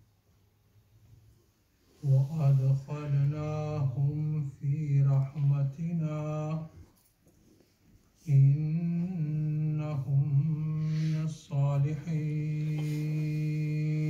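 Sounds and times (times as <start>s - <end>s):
man chanting melodically: 2.0s - 6.8s, 8.3s - 14.0s.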